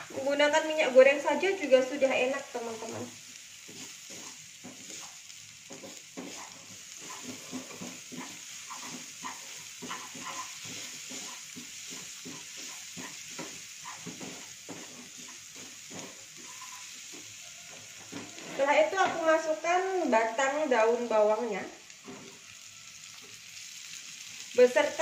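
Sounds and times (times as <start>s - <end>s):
garlic sizzling in oil: 0.0s - 25.0s
spatula scraping a pan: 2.8s - 19.2s.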